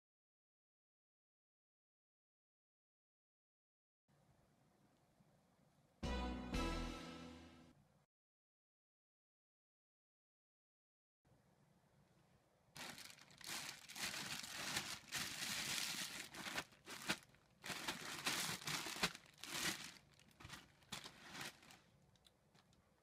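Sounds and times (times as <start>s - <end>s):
plastic bags crinkling: 12.8s - 22.8s.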